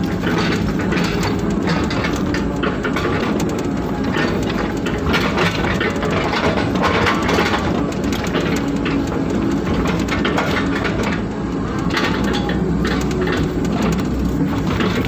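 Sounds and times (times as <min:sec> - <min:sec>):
crackles and scrapes: 0:00.0 - 0:15.0
excavator diesel engine under load: 0:00.0 - 0:15.0.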